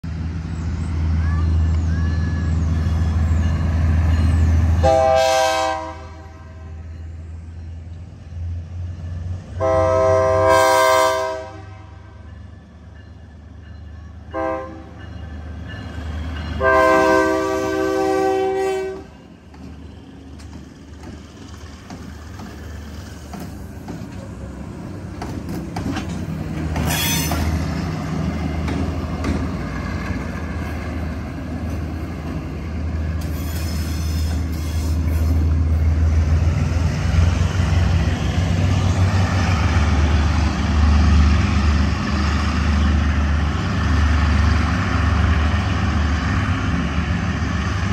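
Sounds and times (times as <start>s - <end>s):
locomotive engines rumbling: 0.0s - 47.9s
locomotive air horn: 4.8s - 6.8s, 9.6s - 12.2s, 14.3s - 15.0s, 16.6s - 19.2s, 26.8s - 27.6s
wheels clicking over rail joints: 19.4s - 27.6s, 28.2s - 32.5s.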